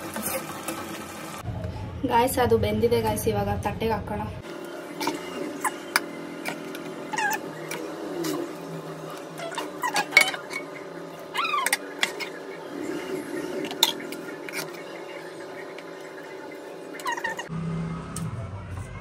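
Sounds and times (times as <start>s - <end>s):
ladle squeaky glides: 5.0s - 16.2s, 16.8s - 17.5s.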